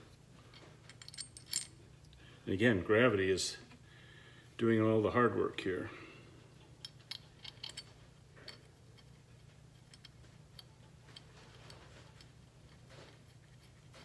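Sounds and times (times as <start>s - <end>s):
low steady hum: 0.0s - 14.0s
small metallic clicks: 6.8s - 14.0s.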